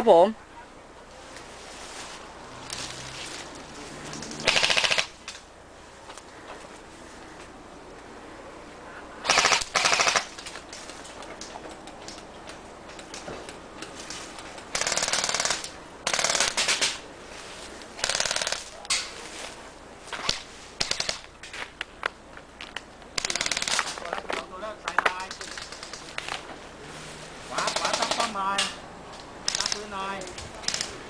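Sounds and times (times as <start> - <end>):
airsoft guns firing bursts: 4.1 - 5.2, 9.3 - 10.4, 14.7 - 17.0, 18.0 - 18.7, 20.8 - 21.2, 23.2 - 24.0, 27.6 - 28.3, 29.4 - 29.9, 30.6 - 31.0.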